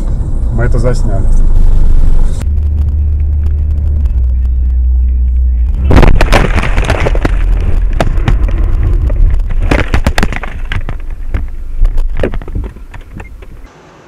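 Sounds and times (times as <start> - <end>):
car rumble: 0.0 - 13.7
dashcam banging and rattling: 5.8 - 13.7.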